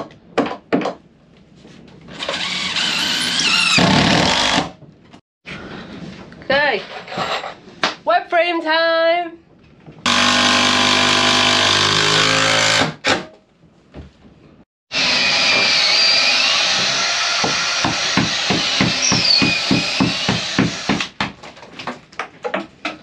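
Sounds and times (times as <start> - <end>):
cordless drill whirring: 2.2 - 4.6
drill grinding into wood: 2.2 - 4.7, 10.1 - 13.0, 14.9 - 21.1.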